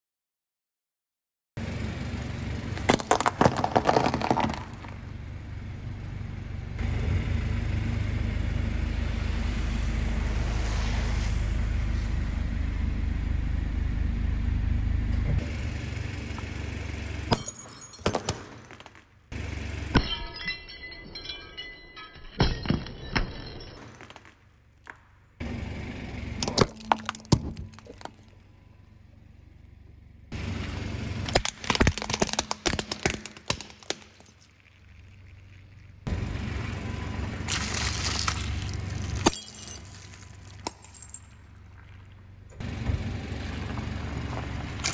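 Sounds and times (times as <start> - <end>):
low engine hum: 1.6 - 18.4, 19.1 - 21.4, 25.2 - 44.9
snacks crunching under tyre: 2.8 - 5.1, 31.2 - 35.8, 37.5 - 40.8
glass figurines shattering: 2.9 - 5.0, 17.3 - 19.1, 19.9 - 25.1, 26.4 - 28.4, 31.3 - 34.5, 37.5 - 41.5.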